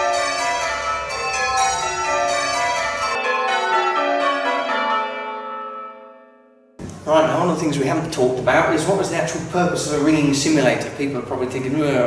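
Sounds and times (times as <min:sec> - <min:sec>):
church bells change ringing: 0:00.0 - 0:06.8.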